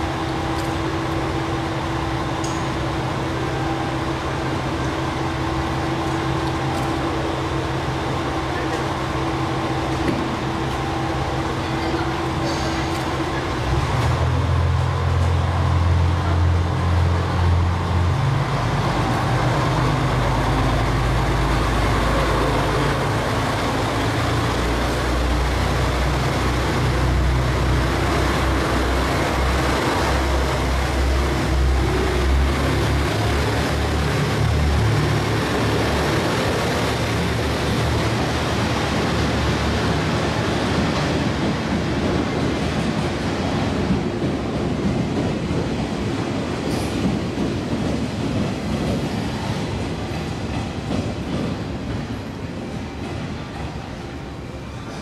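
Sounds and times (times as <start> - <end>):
diesel railcar engine under load: 0.0 - 55.0
train rushing past: 0.0 - 55.0.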